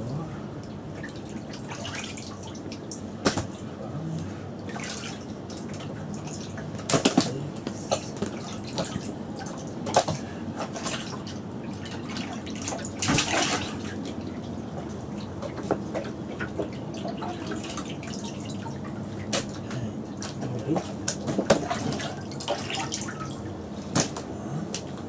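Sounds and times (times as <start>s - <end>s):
water sloshing in a bucket: 0.6s - 3.7s, 4.5s - 25.0s
sharp water splashes: 12.1s - 14.0s.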